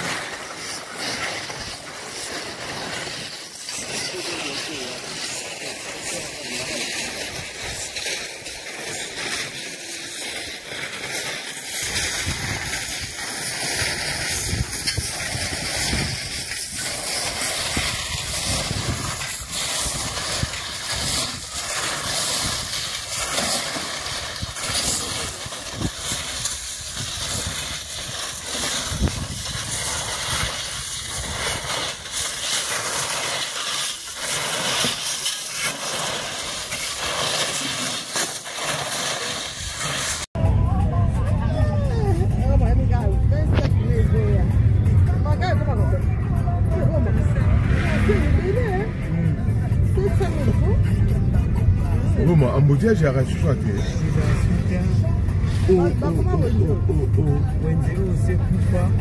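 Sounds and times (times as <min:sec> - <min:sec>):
shovels scraping through gravel: 0:00.0 - 0:40.3
stone spilling onto heap: 0:00.0 - 0:40.3.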